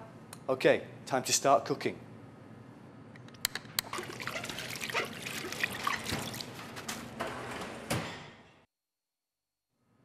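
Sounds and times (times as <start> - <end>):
liquid trickling and splashing: 3.8 - 6.7.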